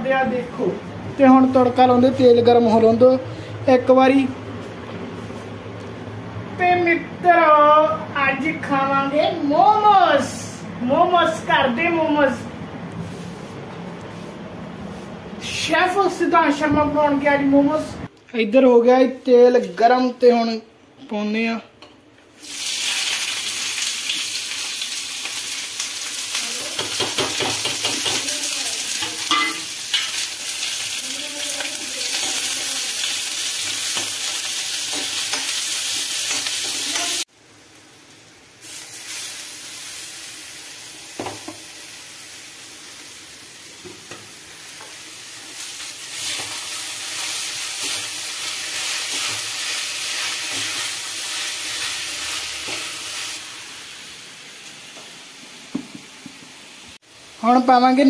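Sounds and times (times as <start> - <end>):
food sizzling in hot oil: 22.3 - 58.0.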